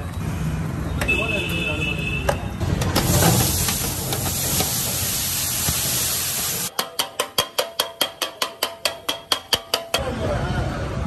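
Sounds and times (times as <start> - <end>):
hissing sizzle on griddle: 3.0 - 6.7.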